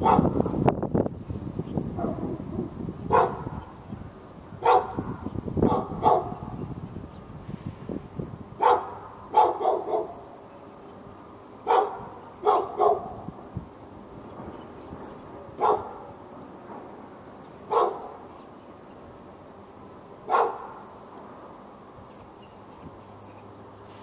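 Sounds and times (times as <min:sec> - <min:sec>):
dog barking: 0:00.0 - 0:00.4, 0:02.0 - 0:02.4, 0:03.1 - 0:03.6, 0:04.6 - 0:06.5, 0:08.6 - 0:10.2, 0:11.6 - 0:13.2, 0:15.5 - 0:16.2, 0:17.7 - 0:18.2, 0:20.3 - 0:20.8.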